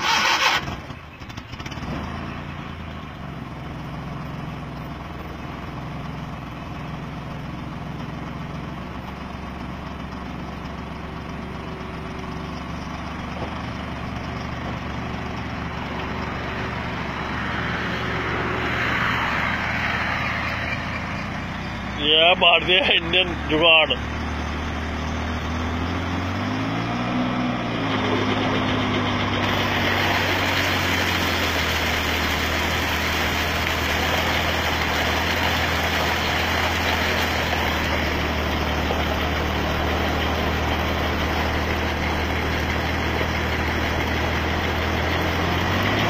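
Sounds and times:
van engine running: 0.0 - 46.0
hissing noise: 29.4 - 41.5.

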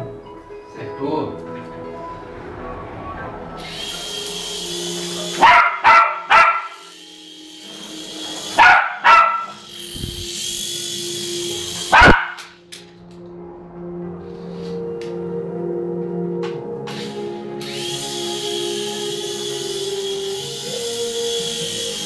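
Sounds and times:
toy helicopter rotor whirring: 3.6 - 12.5, 17.0 - 22.0
small dog barking: 5.3 - 6.8, 8.6 - 9.6, 11.9 - 12.4.

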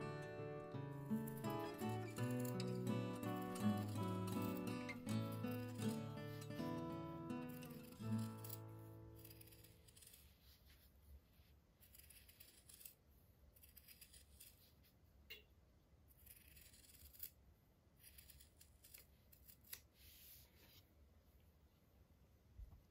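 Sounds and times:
scissors snipping cloth: 1.2 - 6.5, 7.4 - 10.2, 11.8 - 13.0, 18.0 - 19.9.

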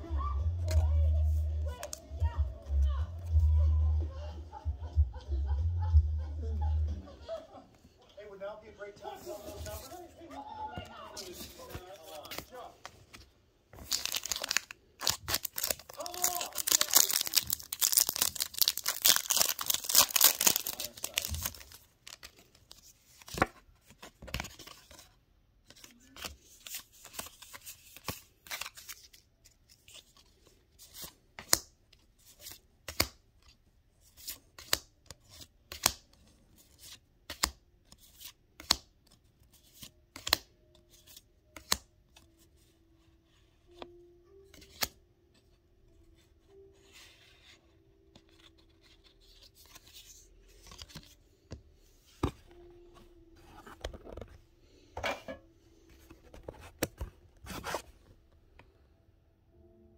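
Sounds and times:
plastic packaging being torn: 13.8 - 22.4.

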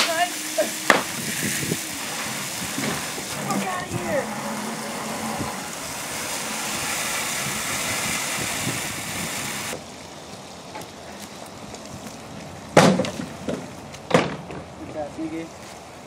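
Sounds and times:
hose water hissing: 0.0 - 10.5.

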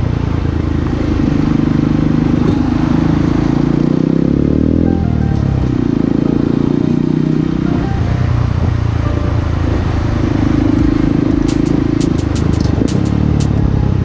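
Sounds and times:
motorcycle engine running: 0.0 - 14.0
sharp clicks: 11.4 - 13.6.

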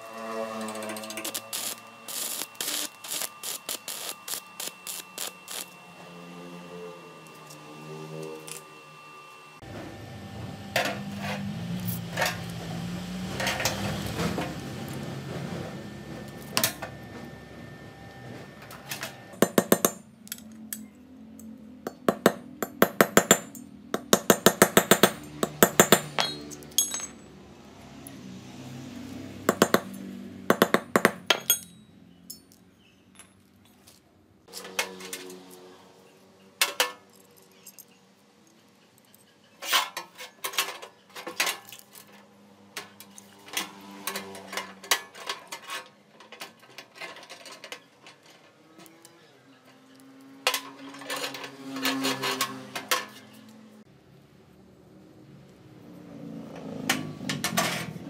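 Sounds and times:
tapping on steel rebar: 21.9 - 26.4.

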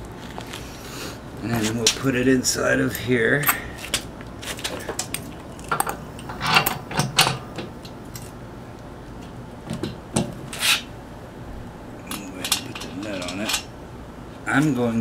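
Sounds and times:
metal axle scraping and clinking: 4.4 - 8.4, 12.1 - 13.7.

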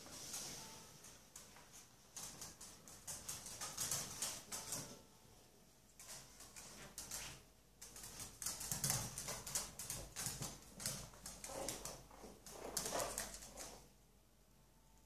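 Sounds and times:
dog claws clicking and scraping: 2.2 - 4.8, 6.0 - 13.8.

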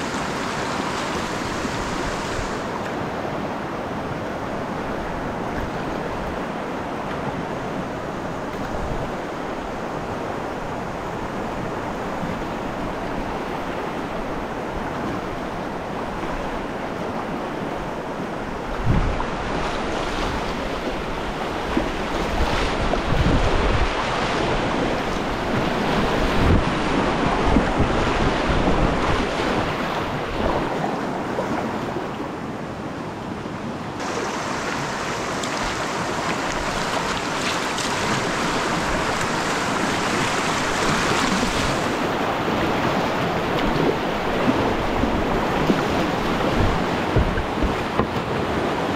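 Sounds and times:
river whitewater rushing: 0.0 - 31.8, 32.4 - 48.9
wind buffeting microphone: 18.5 - 31.5, 34.0 - 48.9.

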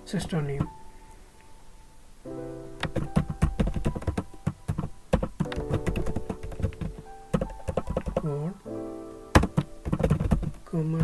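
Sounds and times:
background music with held notes: 0.0 - 11.0
computer keyboard typing: 2.8 - 8.3, 9.4 - 11.0.

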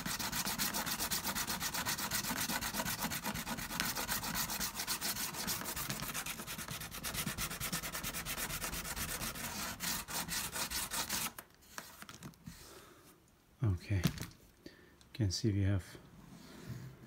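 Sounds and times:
sandpaper rubbing on leather: 0.0 - 11.4.

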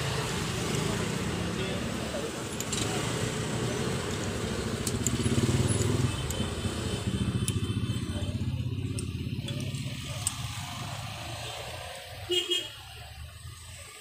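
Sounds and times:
engine running: 0.0 - 12.0.

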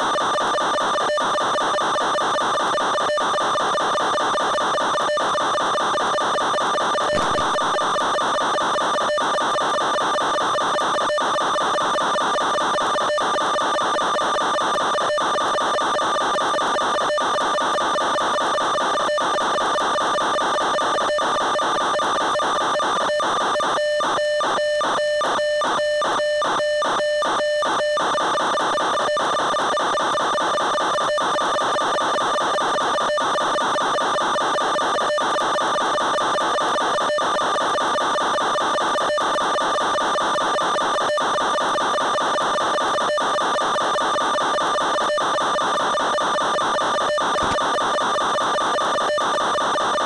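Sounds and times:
electronic buzzing tone: 6.9 - 9.1.

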